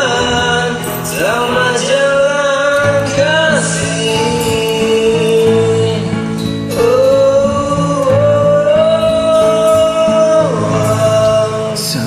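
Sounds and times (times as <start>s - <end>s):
karaoke backing track with guitar: 0.0s - 12.0s.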